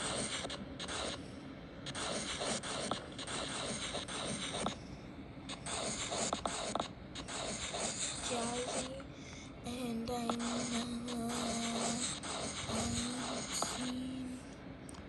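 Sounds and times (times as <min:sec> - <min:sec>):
scratchy rubbing: 0:00.0 - 0:01.2, 0:01.9 - 0:04.8, 0:05.5 - 0:09.0, 0:10.2 - 0:14.1.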